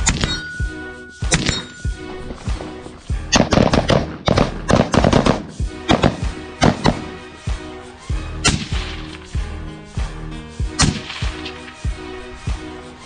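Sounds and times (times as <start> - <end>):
background music: 0.0 - 13.0
rifle shots: 1.3 - 1.8, 3.2 - 7.1, 8.4 - 9.1, 10.8 - 11.6.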